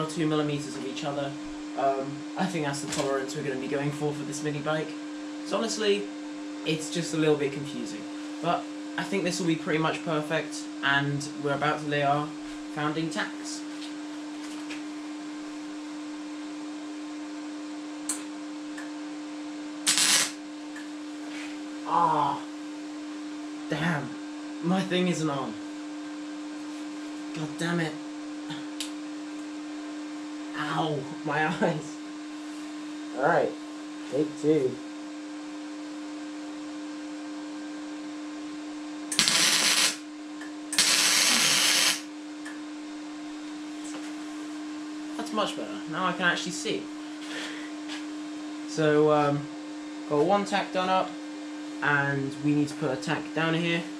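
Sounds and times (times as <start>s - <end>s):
welder electrical hum: 0.0s - 53.9s
welding arc crackle: 19.8s - 20.4s, 39.1s - 40.1s, 40.7s - 42.1s.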